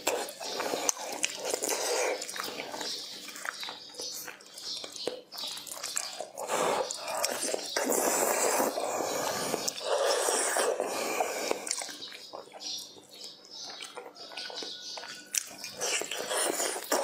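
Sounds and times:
close chewing and sucking: 0:00.0 - 0:17.0
mouth clicks: 0:00.0 - 0:17.0.

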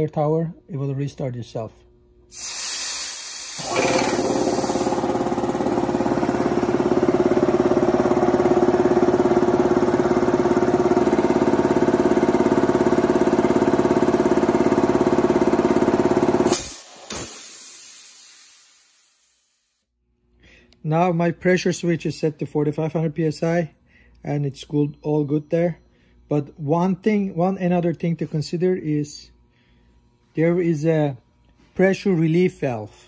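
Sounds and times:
air venting hiss: 0:02.3 - 0:04.9
air hissing: 0:02.3 - 0:06.7, 0:16.4 - 0:19.7
air compressor running: 0:02.3 - 0:19.7.

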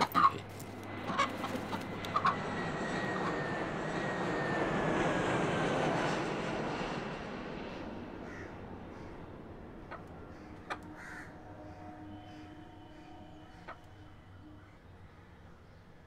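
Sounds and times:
jet airliner roar: 0:00.0 - 0:15.1.

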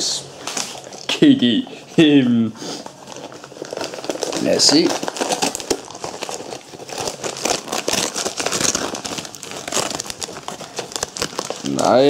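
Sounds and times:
cardboard crinkling and tearing: 0:02.8 - 0:12.0.

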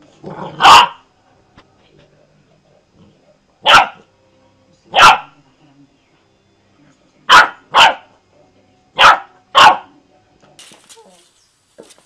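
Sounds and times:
small dog barking: 0:00.6 - 0:01.0, 0:03.6 - 0:04.0, 0:04.9 - 0:05.3, 0:07.3 - 0:08.1, 0:09.0 - 0:09.9.

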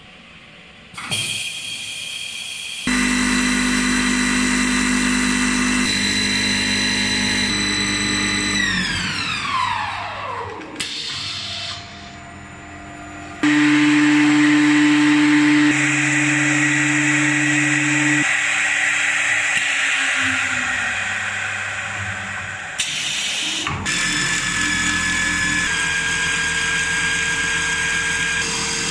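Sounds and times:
lathe motor and spindle whine: 0:02.9 - 0:10.5, 0:11.8 - 0:22.8.

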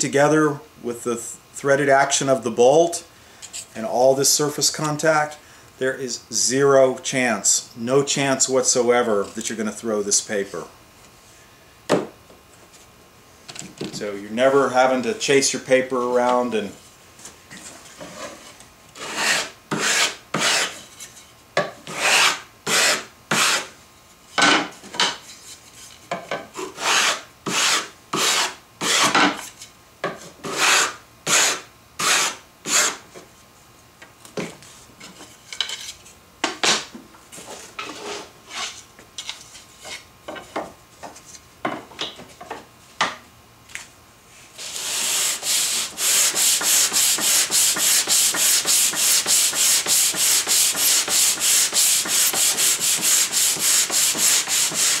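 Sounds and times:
sandpaper rasping on wood: 0:19.0 - 0:20.8, 0:21.9 - 0:23.7, 0:26.6 - 0:29.1, 0:30.4 - 0:33.0, 0:44.6 - 0:55.0.

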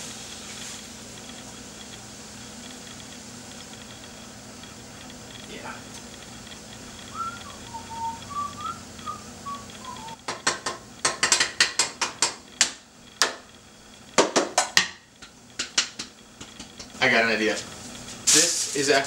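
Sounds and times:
man whistling: 0:07.0 - 0:10.2.

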